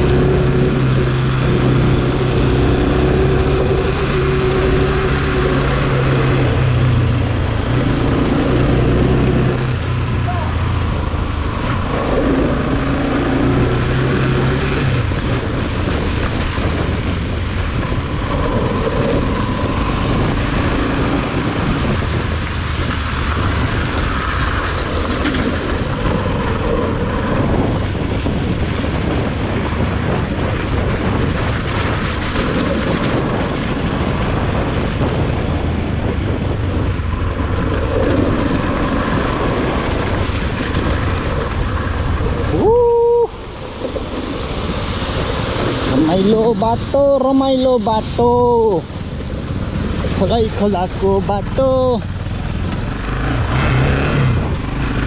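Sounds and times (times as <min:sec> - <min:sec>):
motorcycle engine running: 0:43.4 - 0:55.0.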